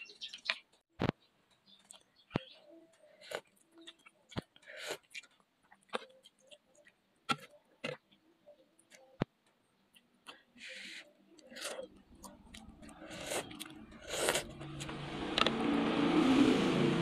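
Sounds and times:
chewing and mouth sounds: 1.7s - 8.0s, 11.4s - 15.5s.

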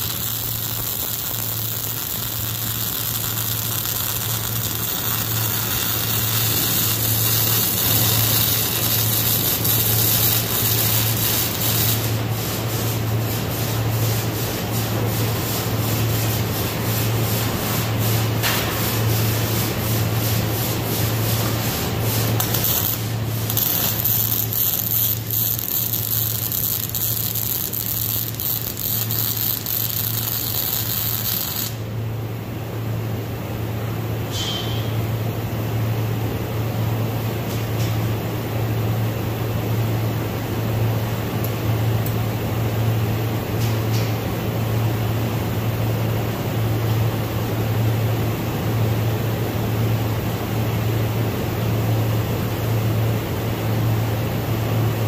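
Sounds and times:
welding arc crackling: 0.0s - 32.0s.

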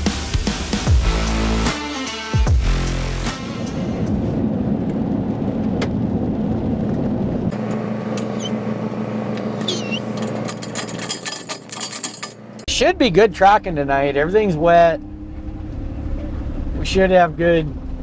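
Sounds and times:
vehicle driving on gravel: 4.1s - 18.0s.

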